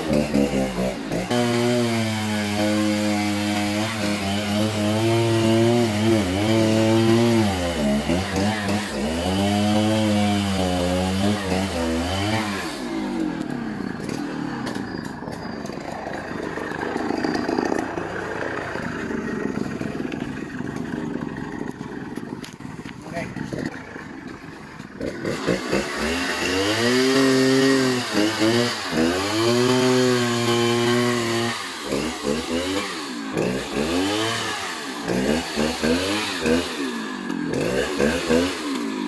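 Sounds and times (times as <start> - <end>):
chainsaw engine running: 0.0 - 39.0
low rough engine rumble: 13.3 - 25.2.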